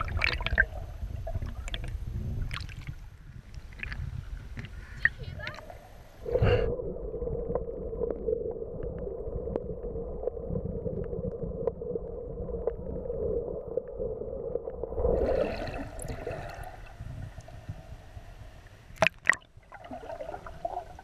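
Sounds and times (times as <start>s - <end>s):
low rumbling water: 0.0s - 21.0s
water sloshing and bubbling: 0.0s - 21.0s
muffled underwater drone: 4.6s - 18.9s.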